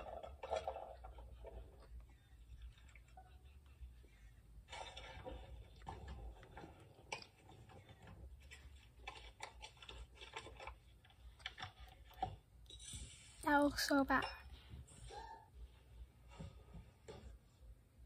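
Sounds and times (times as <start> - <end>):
faint clicks and taps: 4.7 - 12.8.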